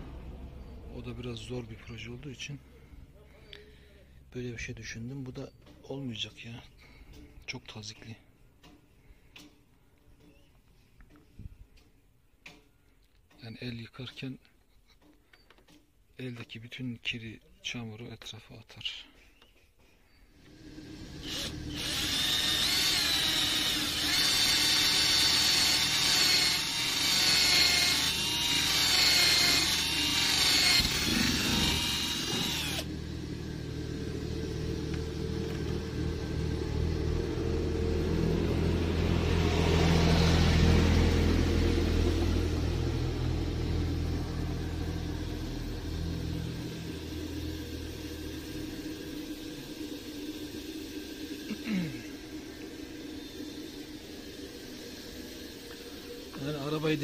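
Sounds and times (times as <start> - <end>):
low motor hum: 0.0 - 3.2, 20.4 - 57.0
electric drill whining: 20.4 - 36.8, 44.0 - 50.7.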